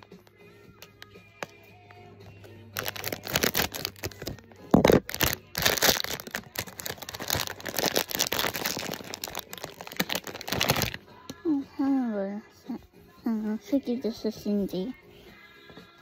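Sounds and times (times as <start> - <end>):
foil pouch crackling and rustling: 2.8 - 11.0
loud crunch: 4.7 - 11.0.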